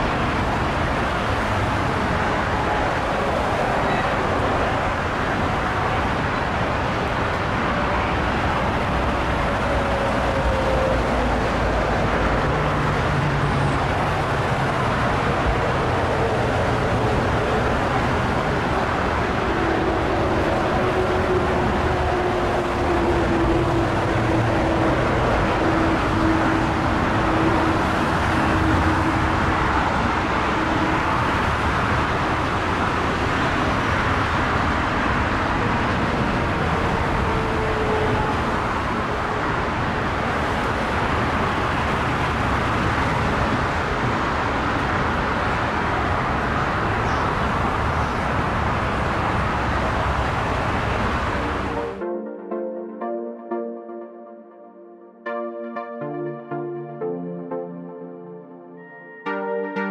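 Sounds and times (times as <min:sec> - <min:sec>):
jet airliner roar: 0:00.0 - 0:41.4.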